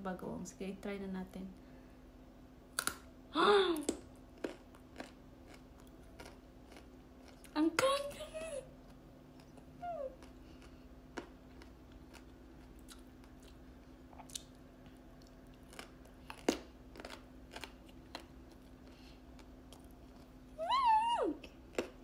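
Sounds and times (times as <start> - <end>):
faint steady hum: 0.0 - 22.0
crunchy biting and chewing: 3.8 - 7.6, 9.3 - 20.4.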